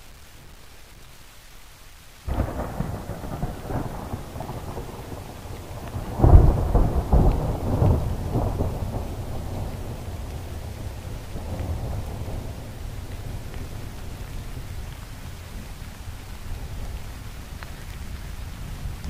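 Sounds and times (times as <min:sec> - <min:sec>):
faint hiss: 0:00.0 - 0:19.0
rain: 0:00.0 - 0:19.0
rumbling thunder: 0:02.3 - 0:15.0.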